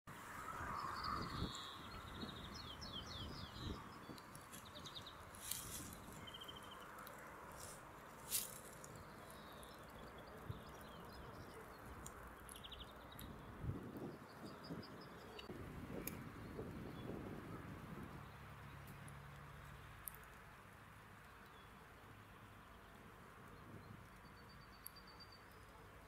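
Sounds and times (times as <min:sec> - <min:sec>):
distant birdsong: 0:00.1 - 0:20.4
songbirds chirping and trilling: 0:00.1 - 0:26.0.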